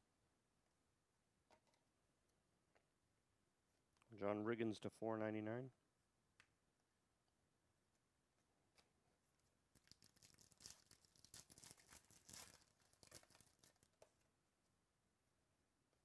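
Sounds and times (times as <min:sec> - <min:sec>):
foil wrapper tearing and crinkling: 0:09.7 - 0:14.1.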